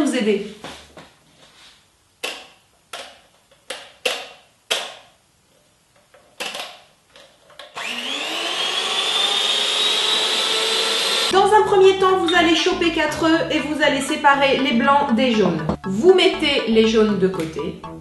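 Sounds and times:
electric hand mixer whine: 7.7s - 11.3s.

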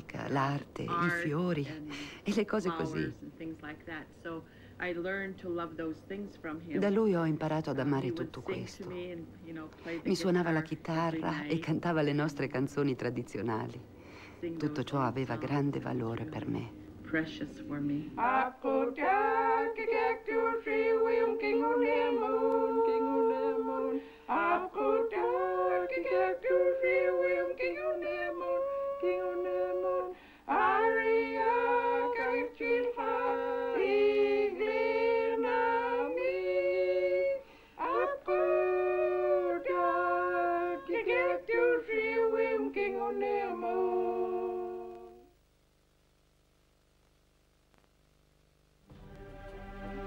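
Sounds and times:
women singing unaccompanied: 0.0s - 1.7s, 14.5s - 45.4s.

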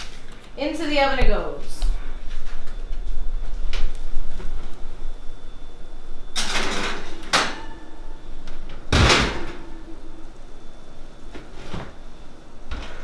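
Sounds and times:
oven door shutting with thud: 8.7s - 9.7s.

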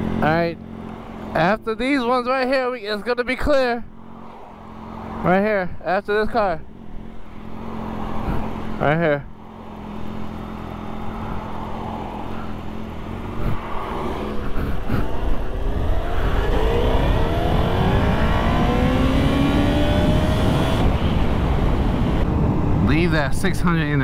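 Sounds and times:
motorcycle engine accelerating: 6.6s - 22.8s.

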